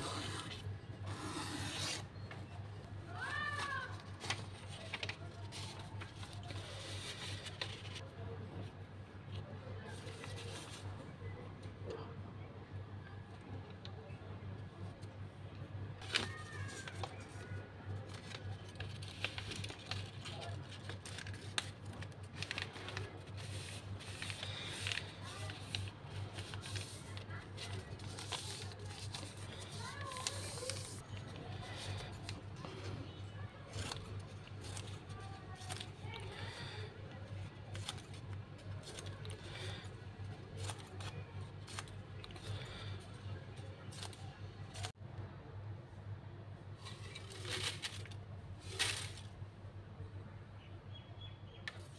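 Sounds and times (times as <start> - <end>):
paper rustling and tapping: 3.2 - 8.0, 18.1 - 31.0.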